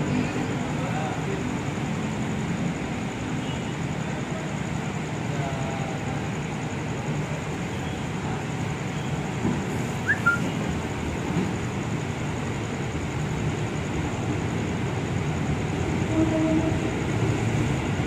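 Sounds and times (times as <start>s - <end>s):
trains rumbling: 0.0s - 18.0s
high rising chirp: 10.0s - 10.6s.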